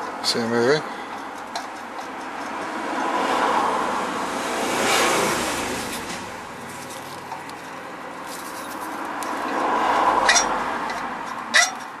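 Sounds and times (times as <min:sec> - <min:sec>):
hand rustling on exhaust pipe: 0:05.8 - 0:11.4.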